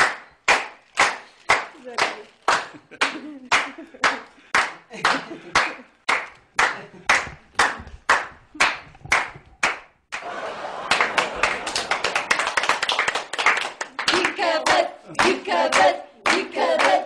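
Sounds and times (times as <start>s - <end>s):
hands clapping: 0.0s - 17.0s
several people clapping: 0.0s - 17.0s.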